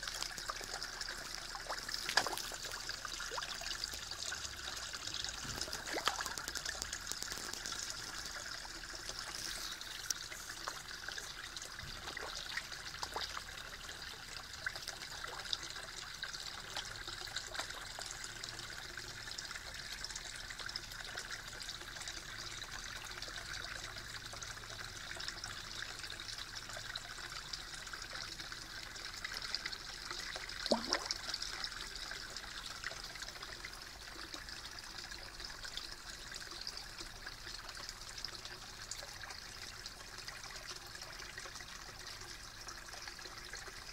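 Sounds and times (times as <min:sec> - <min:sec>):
water trickling into pond: 0:00.0 - 0:43.9.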